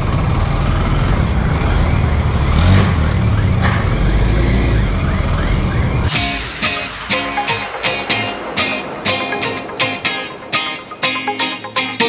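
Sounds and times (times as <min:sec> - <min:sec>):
motorcycle engine running: 0:00.0 - 0:06.1.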